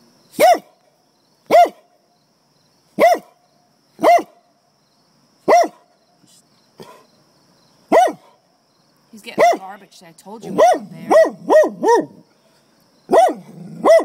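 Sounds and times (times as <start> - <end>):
dog barking: 0.4 - 0.8, 1.5 - 1.9, 3.0 - 3.4, 4.0 - 4.4, 5.4 - 5.9, 7.9 - 8.4, 9.4 - 9.7, 10.5 - 12.2, 13.1 - 14.0.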